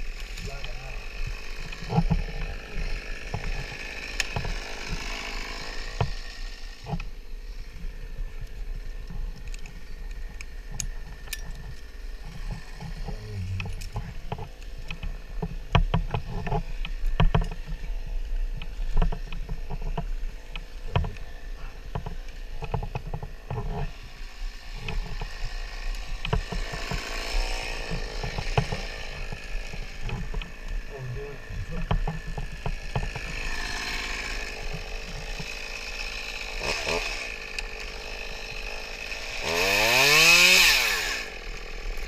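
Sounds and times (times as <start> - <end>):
branches rustling: 0.0 - 42.0
steady low rumble: 12.0 - 14.8
rope hardware knocks and clicks: 12.4 - 17.8, 18.9 - 21.2, 31.6 - 33.4.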